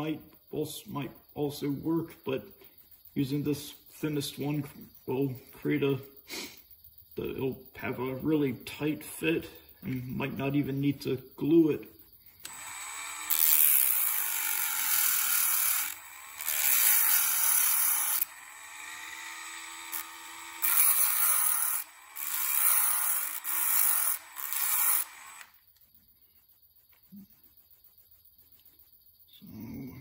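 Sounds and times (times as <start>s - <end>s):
rotary tool grinding copper: 12.4s - 25.6s.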